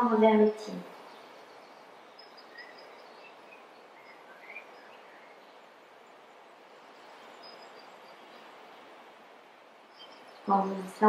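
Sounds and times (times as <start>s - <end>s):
faint background hiss: 0.0s - 11.0s
faint high bird chirps: 0.4s - 6.2s, 9.9s - 11.0s.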